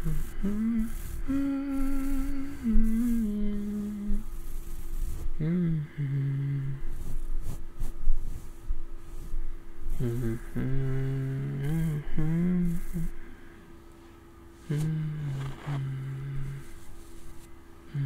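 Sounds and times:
brushing hiss on microphone: 0.0 - 5.4, 6.6 - 13.3, 14.0 - 17.6
man humming a slow tune: 0.0 - 7.2, 9.9 - 13.4, 14.6 - 17.2.

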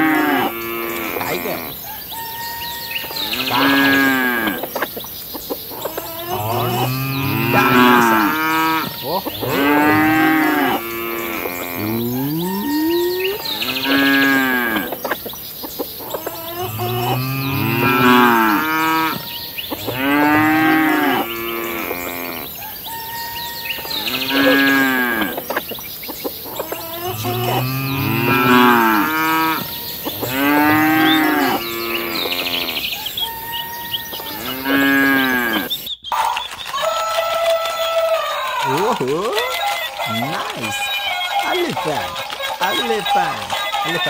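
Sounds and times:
cow mooing: 0.0 - 1.8, 2.4 - 4.6, 6.0 - 15.0, 16.5 - 25.4, 26.8 - 35.8.

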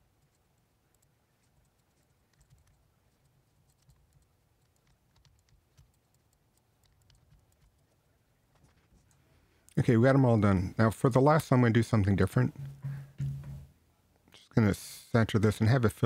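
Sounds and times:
computer mouse clicking: 0.2 - 8.0
keyboard keys clicking: 3.7 - 7.9.

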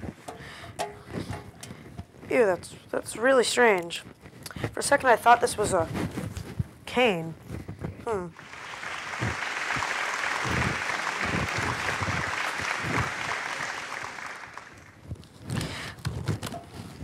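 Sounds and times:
audience applauding: 8.3 - 15.0.

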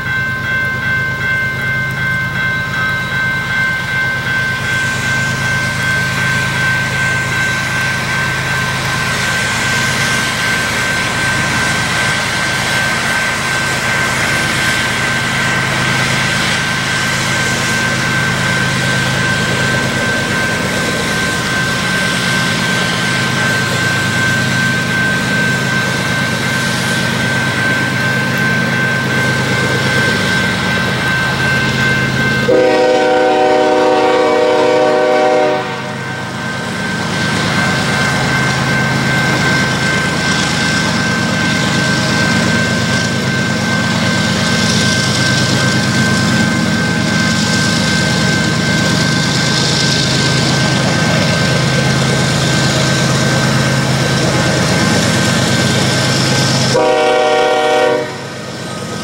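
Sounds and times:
diesel locomotive engines working: 0.0 - 59.0
train horn blast: 32.5 - 36.0, 56.7 - 58.3.

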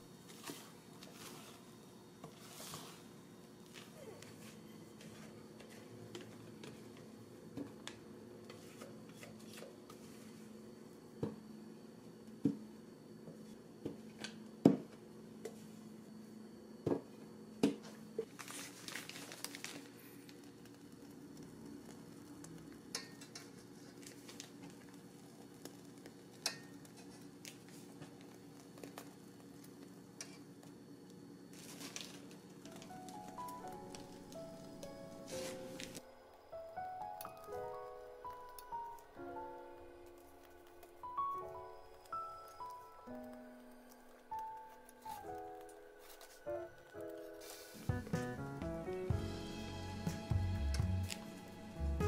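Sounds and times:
faint steady hum: 0.0 - 52.0
plastic bag rustling: 18.3 - 22.2, 31.5 - 36.1.

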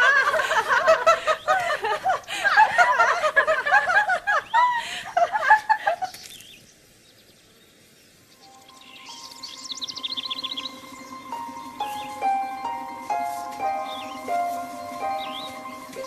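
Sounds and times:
young women laughing and giggling: 0.0 - 6.2.

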